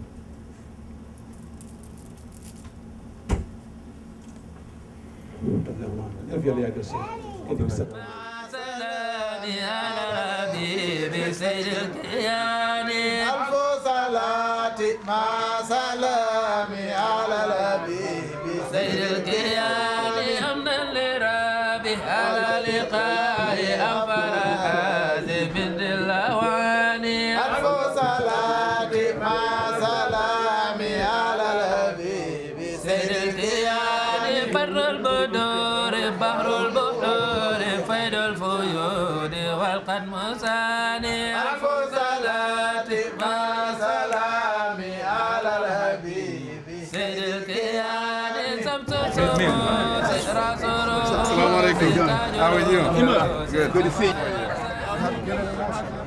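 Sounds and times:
person singing a chant: 8.0 - 55.6.

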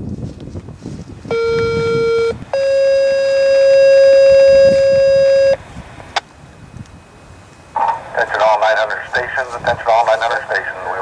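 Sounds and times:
two-tone paging beeps: 1.3 - 5.6.

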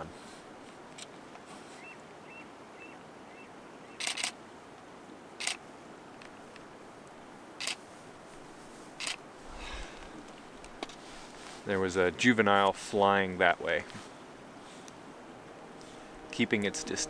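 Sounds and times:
background hiss: 0.0 - 17.0
camera shutter clicks: 4.0 - 4.4, 5.4 - 5.6.

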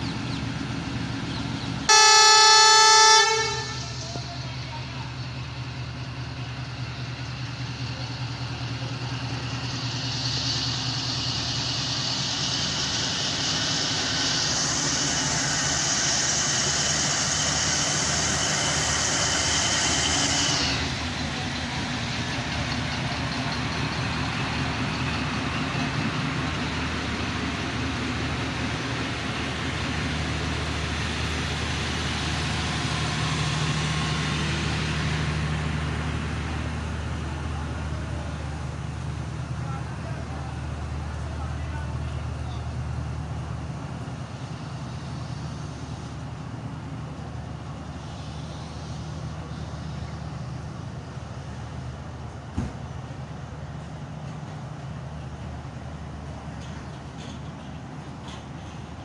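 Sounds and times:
diesel locomotive engine running: 0.0 - 59.0
train coaches rumbling past: 0.0 - 59.0
loud hiss: 9.2 - 22.0.

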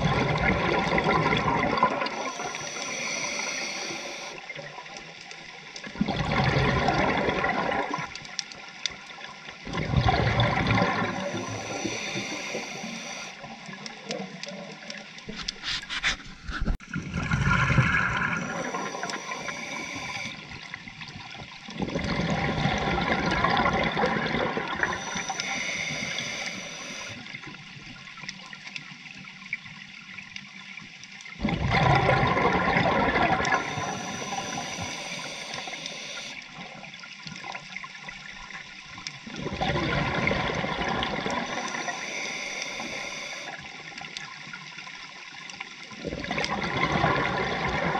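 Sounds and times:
diver exhaling bubbles underwater: 0.0 - 4.4, 6.0 - 8.1, 9.6 - 13.3, 16.5 - 20.6, 21.8 - 27.2, 31.4 - 36.4, 39.3 - 43.6, 46.0 - 47.9
regulator hiss: 2.1 - 4.4, 11.0 - 13.4, 18.3 - 20.7, 24.8 - 27.3, 33.5 - 36.5, 41.4 - 43.7.

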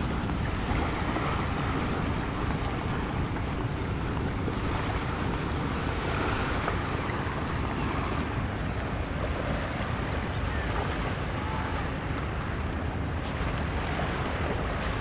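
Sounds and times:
surf washing on beach: 0.0 - 15.0.

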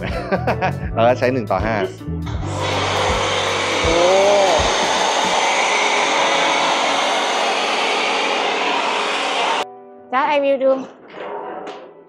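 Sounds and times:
pressure washer spraying foam: 2.4 - 9.6.

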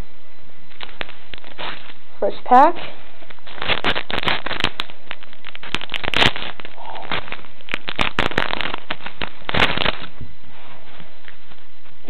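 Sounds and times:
foil wrapper crinkling and tearing: 0.7 - 2.0, 3.2 - 10.2.

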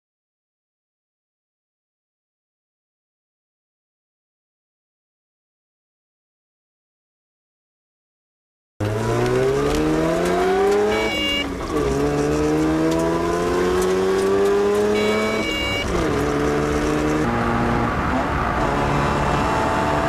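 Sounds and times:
rotary engine accelerating: 8.8 - 20.0.

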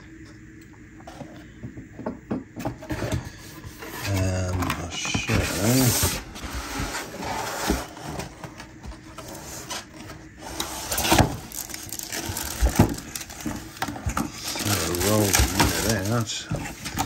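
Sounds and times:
cardboard and plastic wrap rustling: 2.6 - 17.0.

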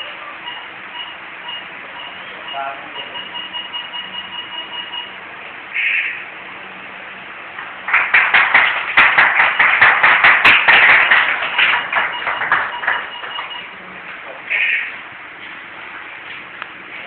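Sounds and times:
small group applauding: 7.6 - 13.7.

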